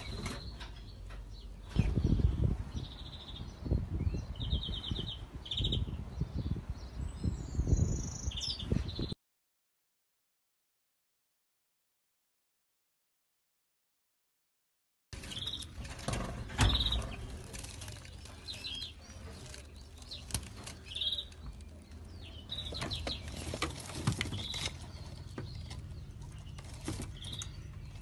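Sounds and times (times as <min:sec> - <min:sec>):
knocks and clicks in cage: 0:00.0 - 0:01.5, 0:15.2 - 0:28.0
finches chirping: 0:24.3 - 0:28.0.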